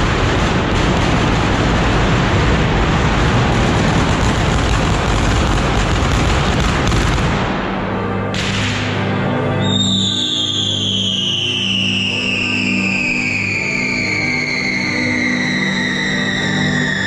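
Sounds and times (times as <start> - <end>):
fireworks bangs: 0.0 - 9.0
music: 0.0 - 17.0.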